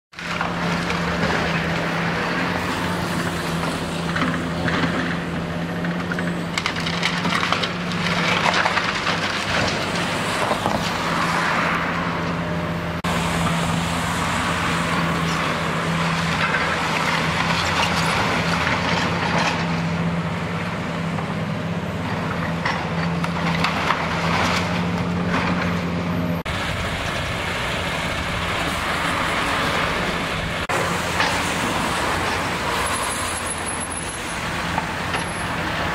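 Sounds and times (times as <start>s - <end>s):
masonry and wood crunching: 0.2s - 26.5s
excavator engine drone: 0.2s - 35.9s.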